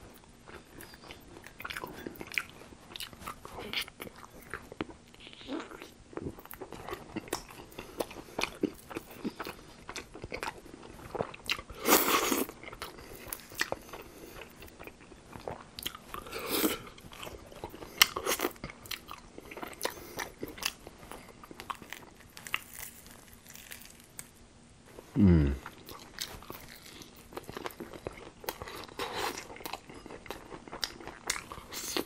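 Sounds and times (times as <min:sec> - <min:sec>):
crunching and chewing fried chicken: 0:00.0 - 0:24.4, 0:25.6 - 0:32.0.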